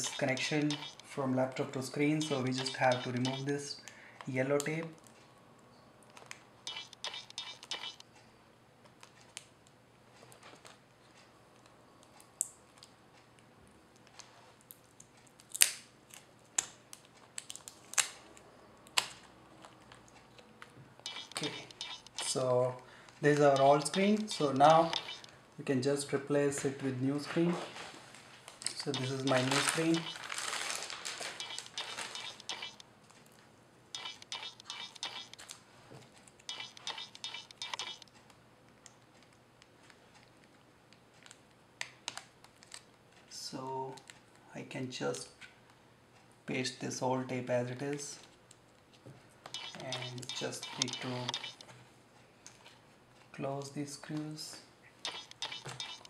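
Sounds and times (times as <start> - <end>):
crinkly tape scratching: 0.0 - 3.6, 6.1 - 8.0, 19.0 - 22.6, 23.2 - 25.4, 28.5 - 33.3, 34.0 - 38.3, 49.4 - 51.8, 55.0 - 56.0
tape peeling with clicks: 6.1 - 8.0, 14.0 - 22.4, 28.5 - 33.2, 36.2 - 43.0, 49.4 - 51.7
faint ticks: 23.5 - 25.3, 36.5 - 38.1, 49.5 - 51.7.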